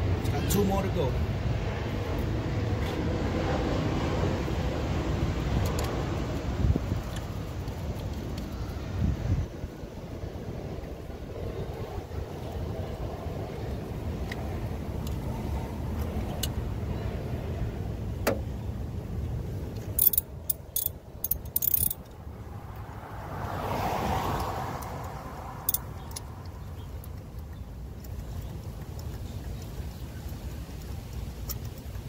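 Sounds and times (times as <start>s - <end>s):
car passing: 0.0s - 6.8s, 21.6s - 27.2s
sharp metallic clinks: 20.0s - 22.2s
tools and plastic connectors clicking: 20.0s - 22.2s.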